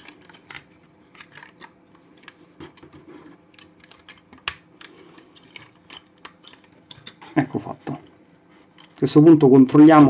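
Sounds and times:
plastic toy parts clicking: 3.5s - 7.3s.

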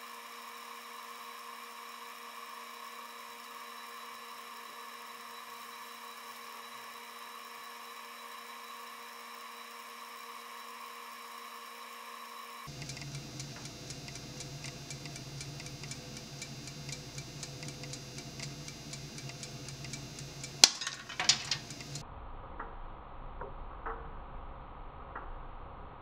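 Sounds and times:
coffee beans ticking: 12.7s - 22.0s
low hum: 12.7s - 26.0s.

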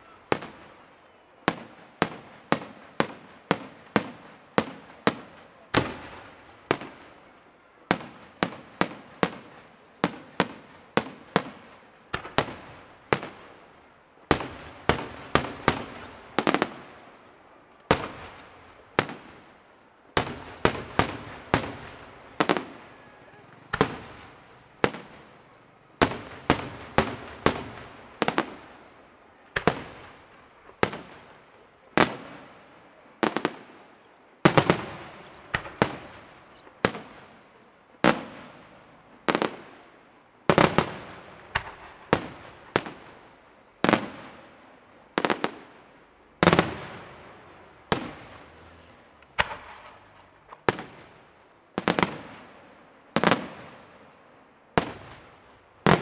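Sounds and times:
firework shells bursting: 46.4s - 52.4s.

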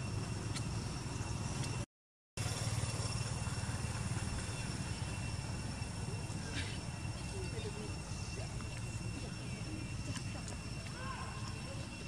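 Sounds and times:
low outdoor rumble: 2.4s - 12.0s.

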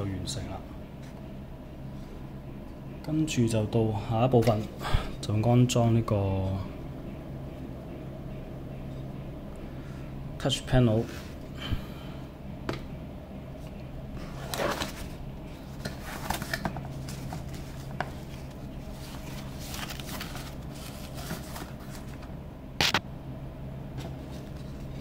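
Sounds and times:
steady low hum: 0.0s - 25.0s
protective wrapping rustling: 16.0s - 22.2s.

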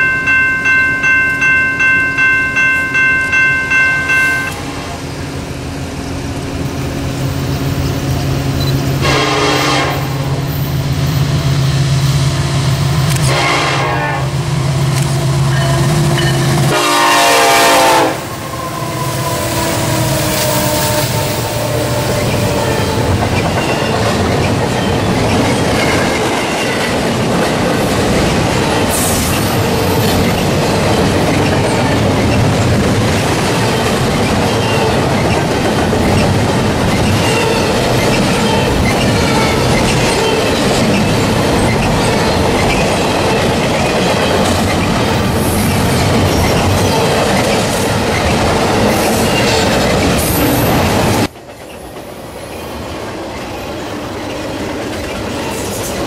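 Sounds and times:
train cars rumbling and clacking: 0.0s - 56.0s
locomotive horn blast: 9.0s - 10.4s, 13.1s - 14.4s, 16.6s - 22.1s.

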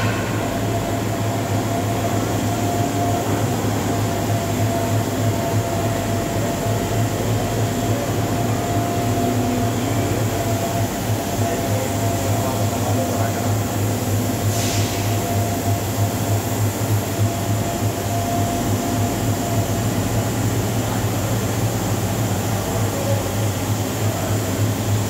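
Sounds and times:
electrical machinery hum: 0.0s - 25.0s
thin steady whine: 0.0s - 25.0s.

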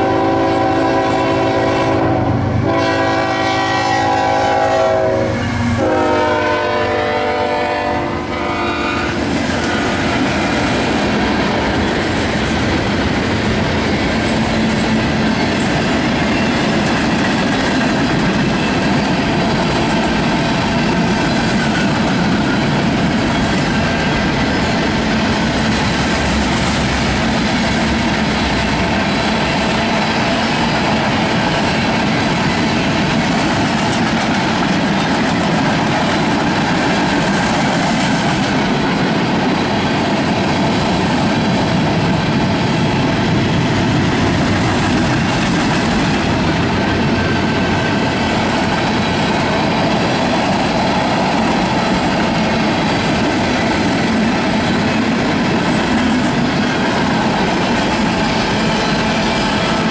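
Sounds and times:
train cars rattling: 0.0s - 59.9s
steel wheels on rails: 4.1s - 59.9s.

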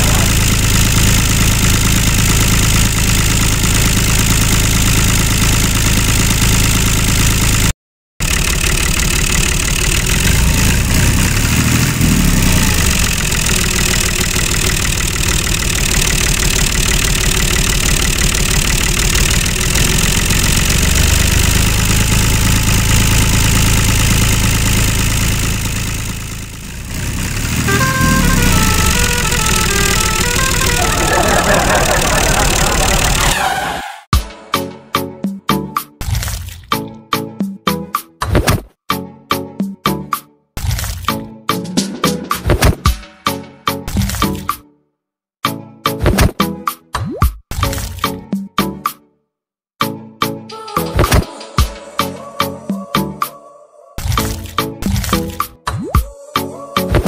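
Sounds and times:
tractor engine running: 0.0s - 33.9s.

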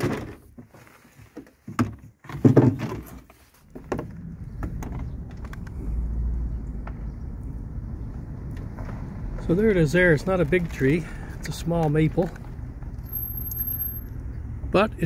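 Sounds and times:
sharp knocks and clunks: 0.0s - 0.7s, 1.4s - 5.7s.

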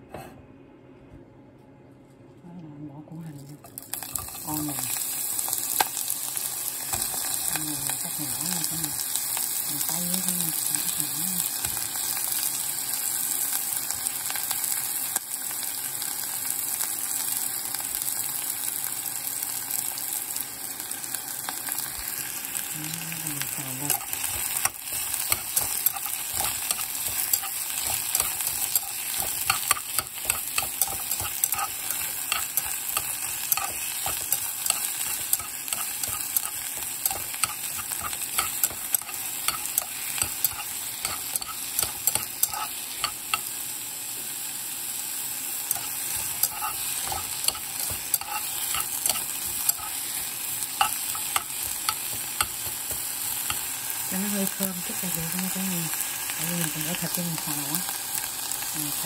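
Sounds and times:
onions sizzling in oil: 3.4s - 59.0s
utensil clicking against pan: 23.9s - 43.5s, 45.7s - 53.7s.

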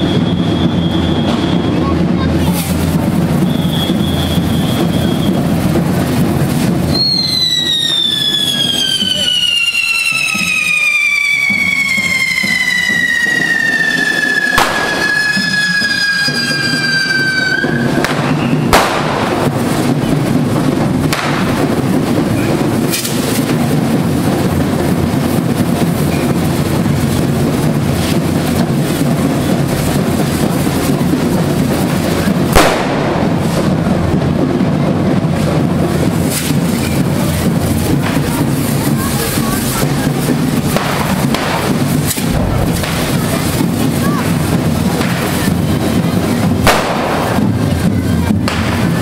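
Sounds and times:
high whistle falling in pitch: 0.0s - 1.8s, 6.9s - 18.7s
fireworks hissing and crackling: 0.0s - 49.0s
sharp bangs: 11.2s - 34.6s, 35.3s - 49.0s.

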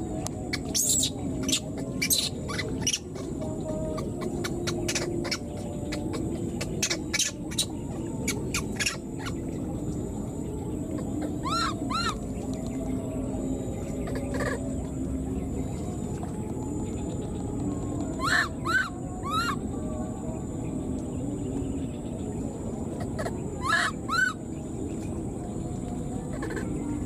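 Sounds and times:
baby monkey squeaking: 0.6s - 3.2s, 3.9s - 9.4s, 11.4s - 12.2s, 14.0s - 14.6s, 18.2s - 19.6s, 23.1s - 24.4s.

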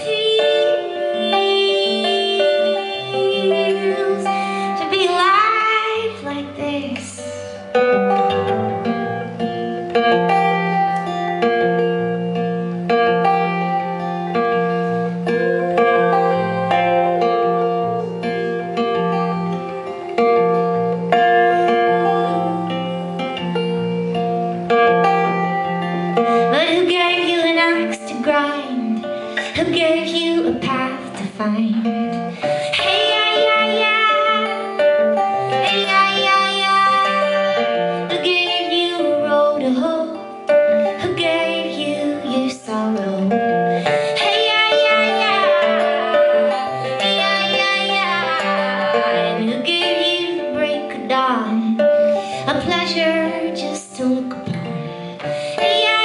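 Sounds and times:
woman singing: 0.0s - 7.6s, 26.3s - 56.0s
acoustic guitar plucking: 0.0s - 56.0s.

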